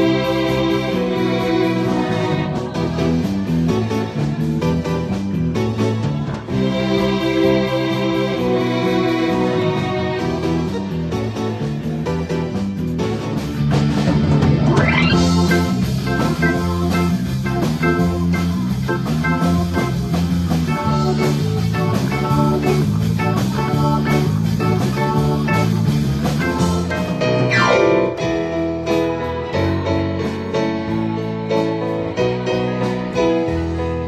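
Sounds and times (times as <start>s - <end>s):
keyboard: 0.0s - 34.0s
pit band playing pulsing chords: 0.0s - 34.0s
synth sweep: 14.7s - 18.3s, 26.4s - 28.4s.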